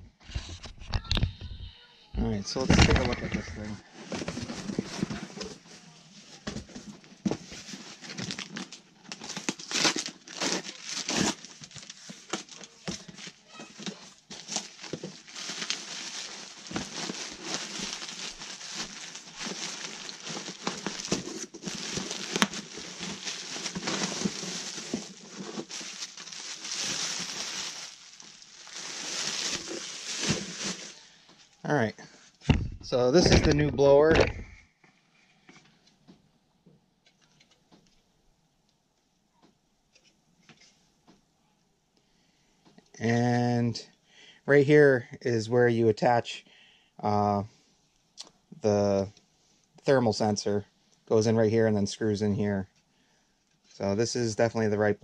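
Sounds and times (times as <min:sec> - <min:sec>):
cardboard crinkling and rustling: 0:02.6 - 0:31.0
bubble wrap crackles: 0:07.5 - 0:31.2.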